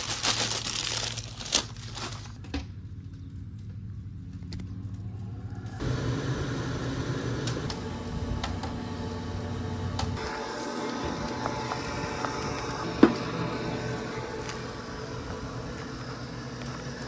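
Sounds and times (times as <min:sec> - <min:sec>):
low steady hum: 0:00.0 - 0:17.0
electric blower running: 0:05.8 - 0:17.0.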